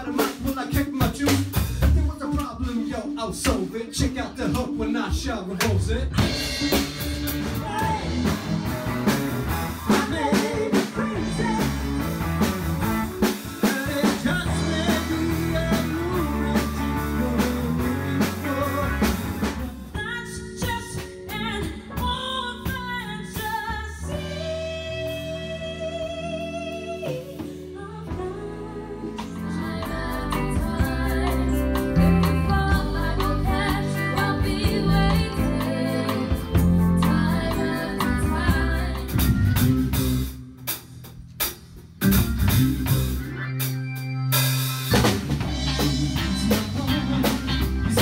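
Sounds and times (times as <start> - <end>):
lead singing: 0.0 - 9.1, 13.2 - 19.9, 27.0 - 39.7, 45.0 - 48.0
drum kit: 0.0 - 48.0
live pop-rock band: 0.0 - 48.0.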